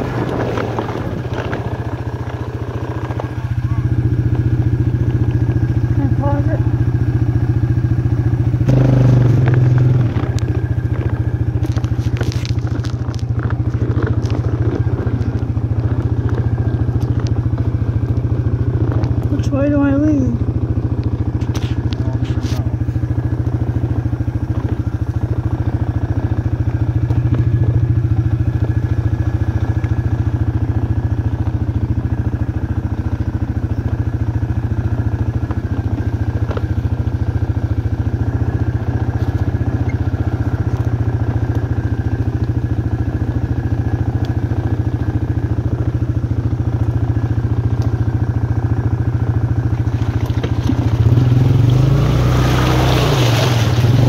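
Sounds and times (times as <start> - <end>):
atv engine running steadily: 0.0 - 54.0
light knocks over bumps: 9.3 - 19.3.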